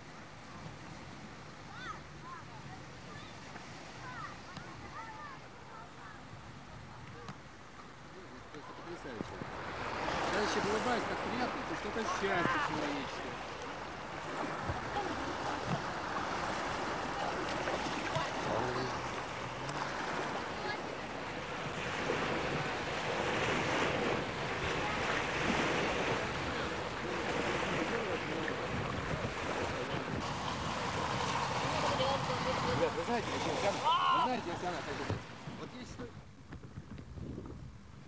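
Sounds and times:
surf washing on shore: 0:00.0 - 0:38.0
wind buffeting microphone: 0:14.0 - 0:33.3, 0:35.0 - 0:38.0.

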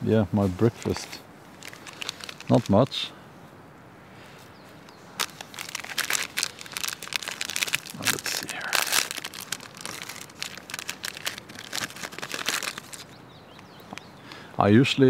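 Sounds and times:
plastic wrapper crinkling: 0:00.7 - 0:02.9, 0:05.2 - 0:13.7.

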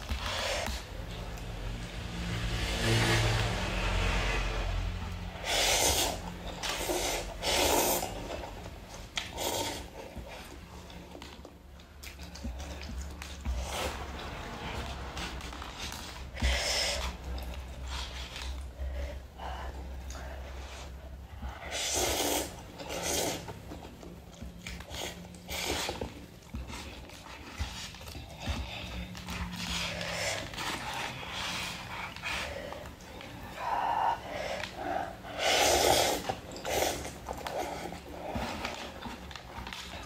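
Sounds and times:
person slurping noodles: 0:05.4 - 0:08.4, 0:21.7 - 0:23.5, 0:35.1 - 0:37.6.

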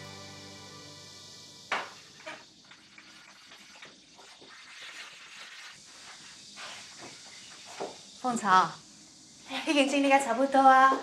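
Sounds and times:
cloth wiping wooden furniture: 0:06.0 - 0:07.9.

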